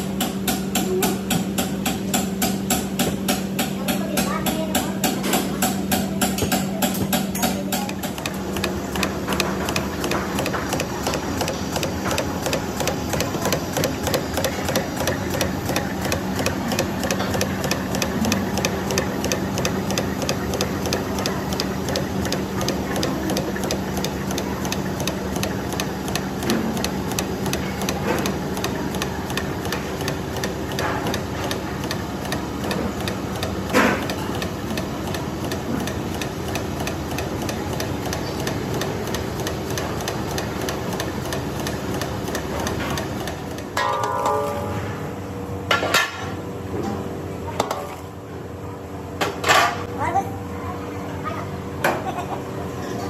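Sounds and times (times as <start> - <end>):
dough machine clattering: 0.0 - 44.9
machine hum: 0.0 - 45.7.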